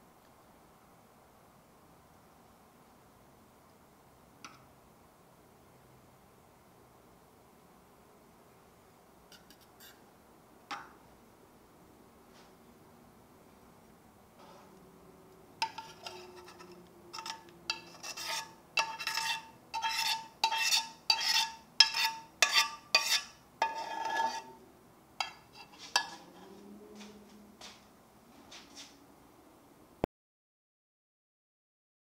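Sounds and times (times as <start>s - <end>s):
metal spoon scraping saucepan: 9.3s - 10.0s, 15.6s - 24.6s, 25.2s - 26.6s.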